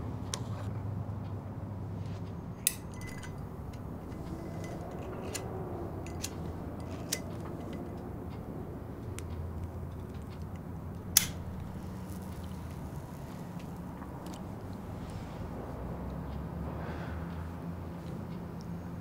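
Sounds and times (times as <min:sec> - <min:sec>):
low steady hum: 0:00.0 - 0:19.0
sharp clink: 0:02.6 - 0:05.5.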